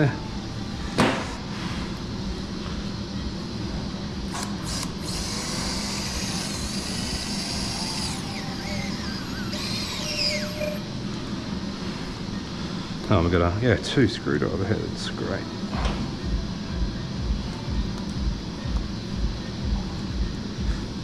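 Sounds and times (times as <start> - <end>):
drill high whine: 4.3 - 11.3.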